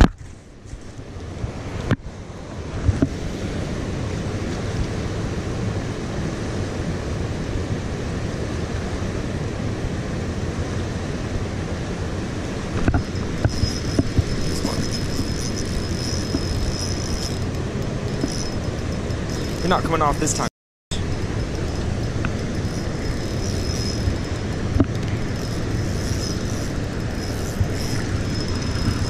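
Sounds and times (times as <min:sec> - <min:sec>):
wind buffeting microphone: 0:11.4 - 0:29.0
fishing reel whine: 0:12.9 - 0:29.0.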